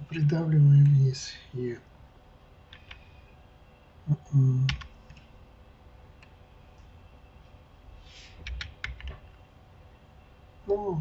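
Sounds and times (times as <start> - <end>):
man humming: 4.1 - 4.8
keyboard keystrokes: 4.7 - 5.2, 8.4 - 9.2.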